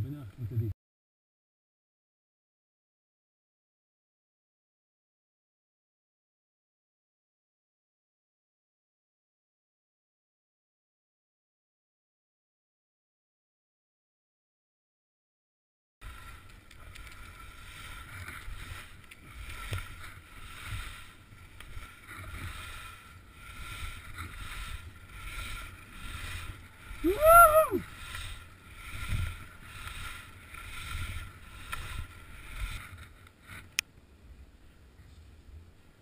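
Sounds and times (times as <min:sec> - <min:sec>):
skis swishing on snow: 0:16.0 - 0:33.8
wind rumbling on microphone: 0:16.0 - 0:36.0
person whooping: 0:27.0 - 0:27.9.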